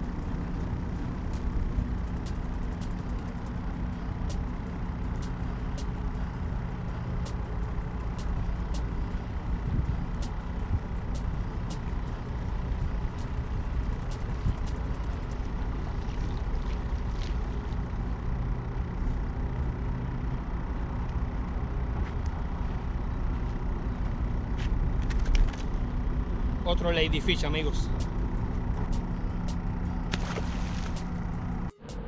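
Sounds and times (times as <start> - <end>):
fishing reel clicking: 0.0 - 17.3.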